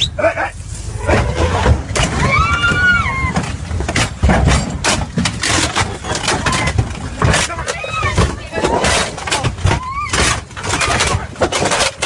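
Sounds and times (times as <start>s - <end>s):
low rumble: 0.0s - 7.3s
vehicle knocking and clattering: 1.6s - 12.0s
high cry: 2.2s - 3.4s.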